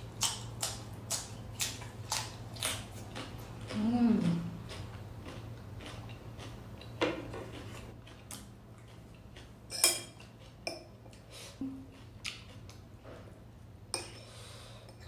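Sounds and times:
low steady hum: 0.0s - 15.0s
soft eating sounds: 0.0s - 15.0s
metal spoon clinking on bowl: 9.7s - 10.9s.

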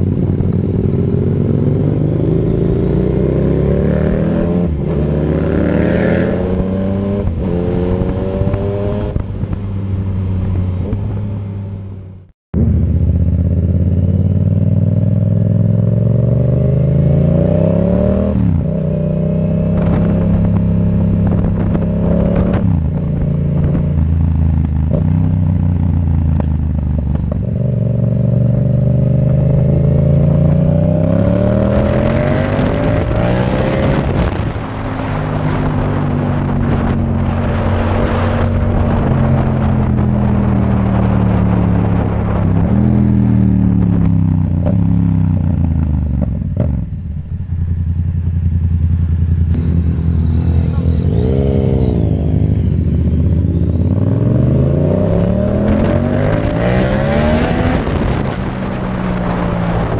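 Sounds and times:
motorcycle engine revving: 0.0s - 59.9s
wind rushing: 17.5s - 24.3s, 28.9s - 45.2s, 49.3s - 59.9s.

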